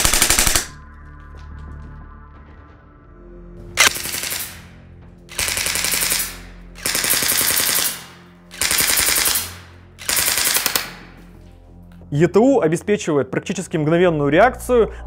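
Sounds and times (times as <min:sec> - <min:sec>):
airsoft gun firing bursts: 0:00.0 - 0:00.7, 0:03.8 - 0:04.7, 0:05.3 - 0:11.1.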